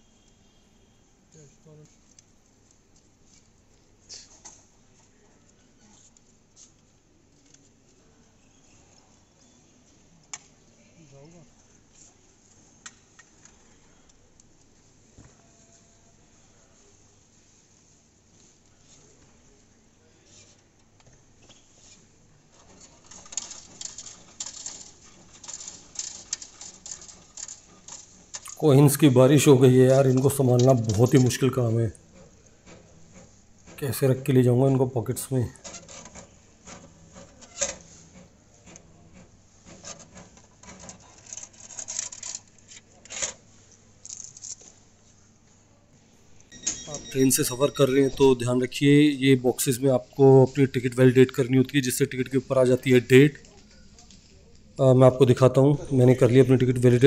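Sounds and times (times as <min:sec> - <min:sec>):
ticket rustling: 0:22.5 - 0:43.4, 0:46.5 - 0:57.0
hand raking through coins: 0:22.8 - 0:31.8, 0:39.9 - 0:42.8
coins clattering into metal tray: 0:23.0 - 0:28.6.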